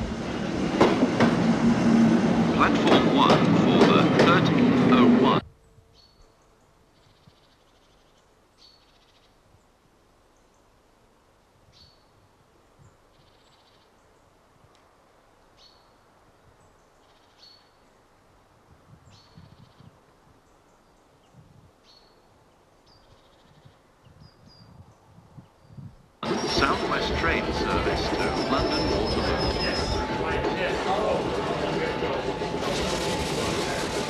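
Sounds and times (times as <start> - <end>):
small bird chirping and trilling: 6.0 - 6.4.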